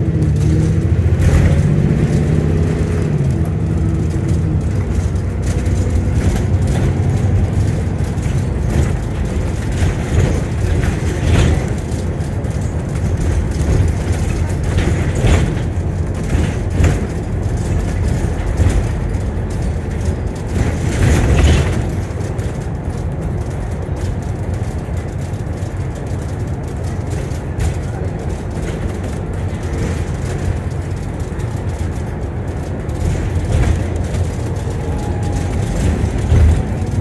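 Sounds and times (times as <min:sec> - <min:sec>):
body and fittings rattling: 0:00.0 - 0:37.0
bus engine and road rumble: 0:00.0 - 0:37.0.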